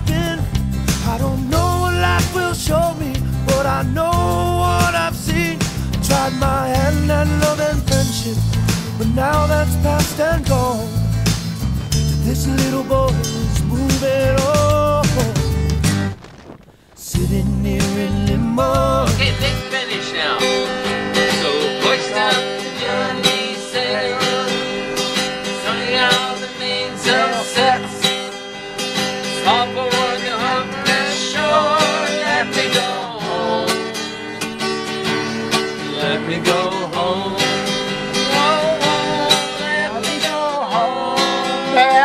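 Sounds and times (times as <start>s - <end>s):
person singing: 0.0s - 10.9s, 12.2s - 15.6s, 17.0s - 20.6s, 25.6s - 28.2s, 29.4s - 34.0s, 35.9s - 42.0s
acoustic guitar strumming: 0.0s - 42.0s.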